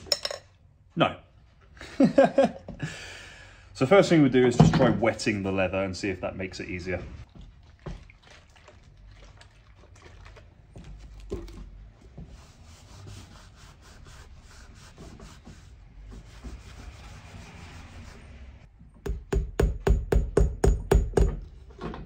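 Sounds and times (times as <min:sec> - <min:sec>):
sponge scrubbing leather: 0:07.2 - 0:18.4.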